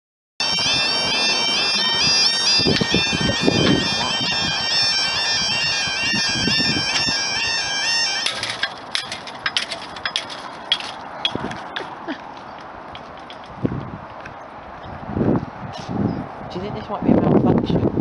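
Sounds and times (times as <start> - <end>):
level crossing alarm warbling: 0.4 - 11.7
sharp clicks and knocks: 8.2 - 12.0, 12.9 - 13.6.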